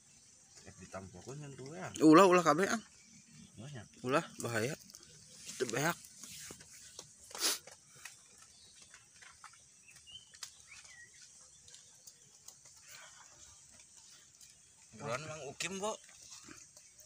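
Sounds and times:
faint bird chirps: 0:00.0 - 0:17.0
plastic bag and leaves rustling: 0:04.4 - 0:17.0.

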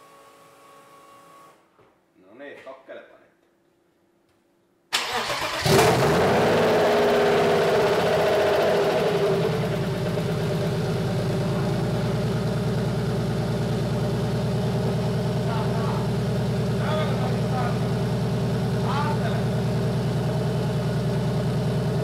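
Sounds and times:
car engine starting and idling: 0:04.9 - 0:22.0.

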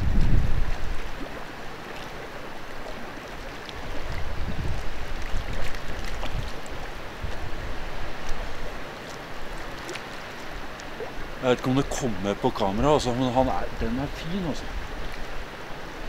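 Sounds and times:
wind buffeting microphone: 0:00.0 - 0:01.4, 0:03.8 - 0:09.6
mountain stream running: 0:00.0 - 0:16.0.

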